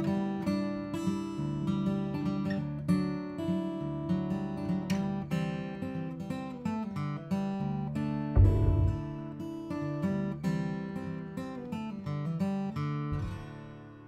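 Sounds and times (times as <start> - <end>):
acoustic guitar playing: 0.0 - 14.0
low thump: 8.4 - 9.4.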